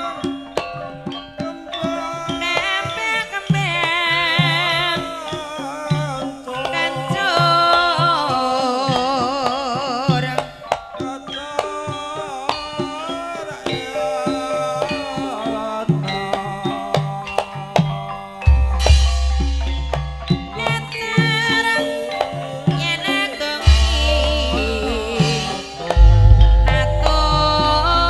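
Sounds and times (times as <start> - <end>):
person singing long notes: 0.0 - 19.0, 20.4 - 28.0
metallophone tones: 0.0 - 28.0
hand drum strokes: 22.8 - 28.0.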